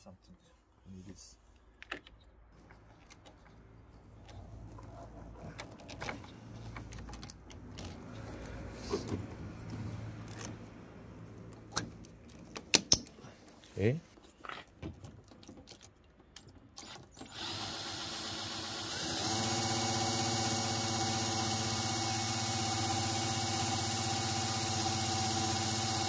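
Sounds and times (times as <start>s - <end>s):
cordless drill running a pump: 16.8s - 26.0s.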